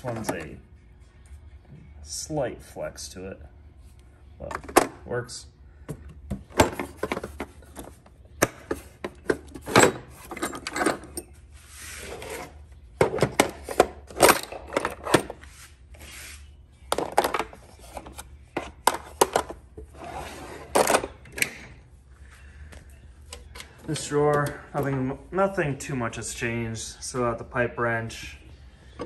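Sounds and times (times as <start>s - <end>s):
drawers sliding shut and open: 11.8s - 15.4s, 19.0s - 21.8s.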